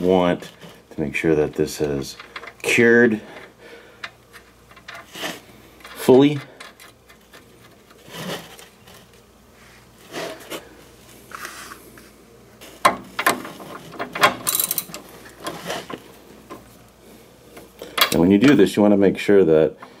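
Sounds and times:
metal tools clinking: 0:13.1 - 0:16.0
socket wrench ratcheting: 0:13.2 - 0:15.6.

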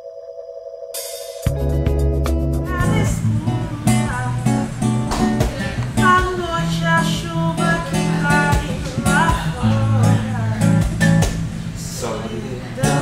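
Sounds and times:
song with guitar and bass: 0:01.4 - 0:11.8, 0:12.8 - 0:13.0.

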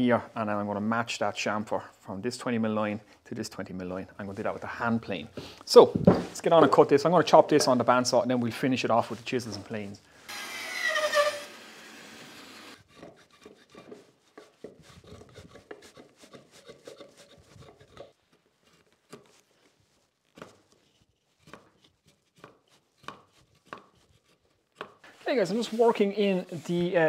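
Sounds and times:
bandsaw cutting wood: 0:10.3 - 0:13.8
hand tool scraping wood: 0:10.3 - 0:27.0.

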